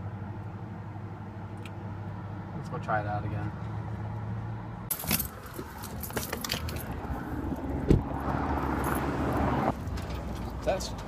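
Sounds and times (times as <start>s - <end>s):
keys jangling: 4.9s - 7.0s
car door shutting: 7.8s - 8.2s.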